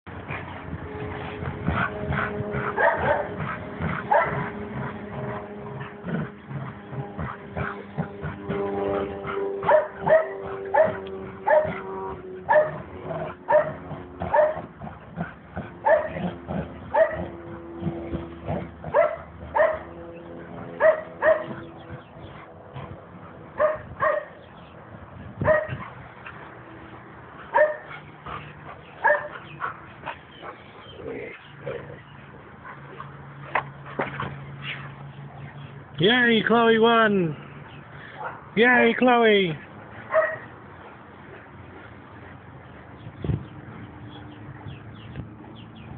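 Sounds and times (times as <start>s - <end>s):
dog barking excitedly: 2.6s - 4.6s, 9.6s - 11.8s, 12.5s - 12.8s, 13.5s - 14.7s, 15.8s - 17.4s, 18.9s - 19.9s, 20.8s - 21.6s, 23.6s - 24.3s, 25.4s - 26.0s, 27.5s - 28.0s, 29.0s - 29.8s, 40.1s - 40.5s.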